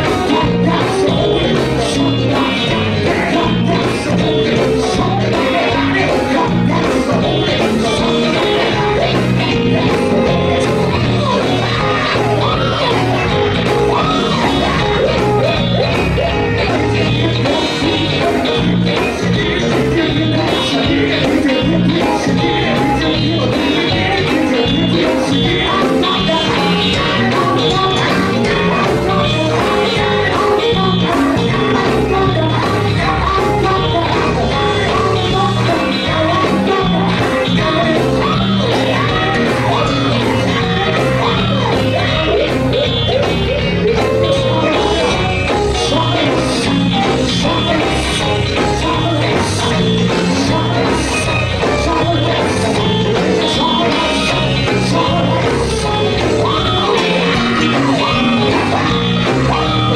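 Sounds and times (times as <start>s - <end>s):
drum-kit beat: 0.0s - 59.9s
electric guitar: 0.0s - 59.9s
gospel band playing: 0.0s - 59.9s
lead singer singing: 0.0s - 59.9s.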